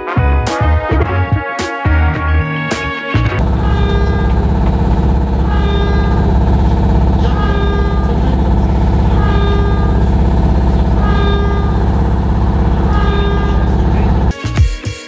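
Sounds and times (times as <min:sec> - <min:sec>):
music: 0:00.0 - 0:15.0
muffled siren-like tone: 0:03.4 - 0:14.3
trolleybus electrical hum: 0:03.4 - 0:14.3.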